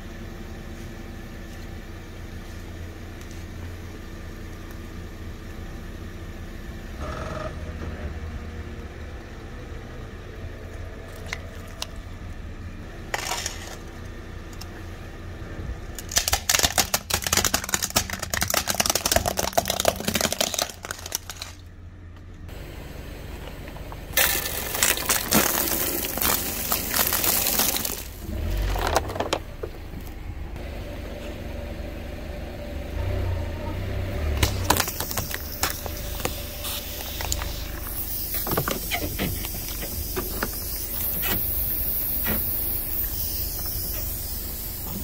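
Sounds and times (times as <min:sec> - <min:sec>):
low car engine rumble: 0:00.0 - 0:45.0
plastic bottles bursting: 0:16.0 - 0:21.7, 0:24.1 - 0:29.1, 0:34.4 - 0:39.8
tyre crushing plastic: 0:16.0 - 0:21.7, 0:24.2 - 0:29.4, 0:34.4 - 0:36.4.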